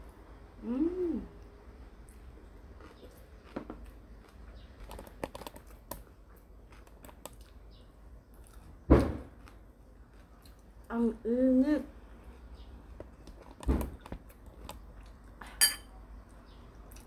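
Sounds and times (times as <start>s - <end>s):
chewing noodles: 2.0s - 7.7s.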